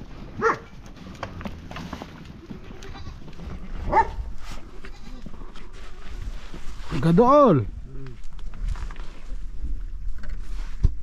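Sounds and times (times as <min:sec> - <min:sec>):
goats bleating: 0:02.4 - 0:03.5, 0:04.6 - 0:05.6.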